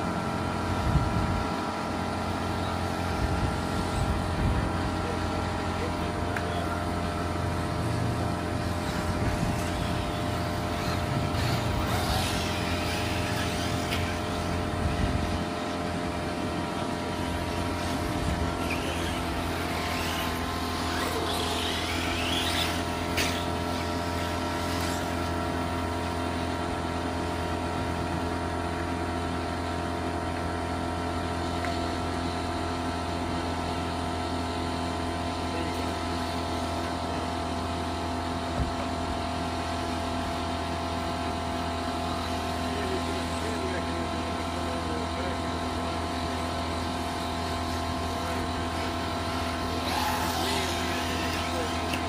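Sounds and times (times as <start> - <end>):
steady background hum: 0.0 - 52.0
electric toy car motors whining: 5.8 - 15.7, 16.7 - 26.4, 47.1 - 52.0.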